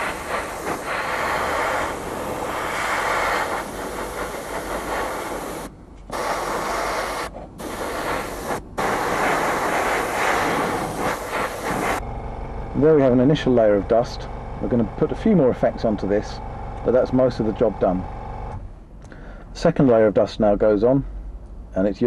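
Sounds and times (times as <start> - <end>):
airbrush hissing: 0.0 - 12.0.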